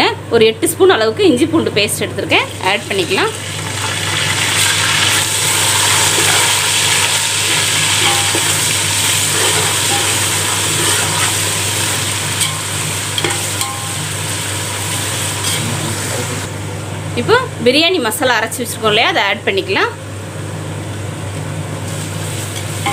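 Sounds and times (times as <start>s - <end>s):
food sizzling in oil: 2.4s - 16.6s, 21.7s - 22.9s.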